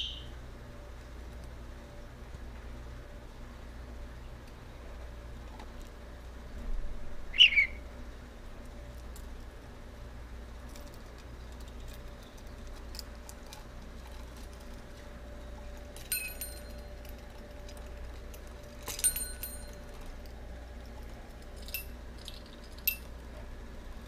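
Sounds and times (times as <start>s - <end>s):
small metal bells ringing: 16.0s - 17.2s, 18.7s - 20.1s, 21.6s - 23.1s.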